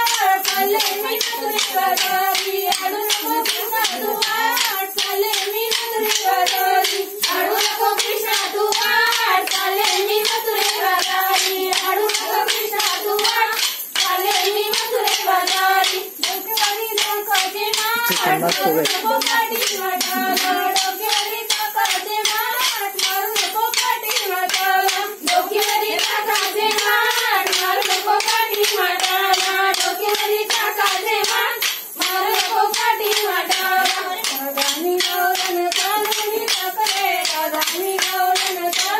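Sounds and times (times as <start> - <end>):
women singing in unison: 0.0 - 38.9
wooden sticks clacking: 0.0 - 38.9.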